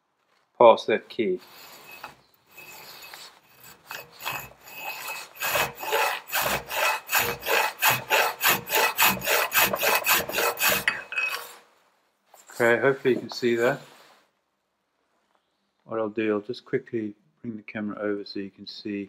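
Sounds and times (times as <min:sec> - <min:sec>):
metal file rasping on metal: 0:01.4 - 0:11.6.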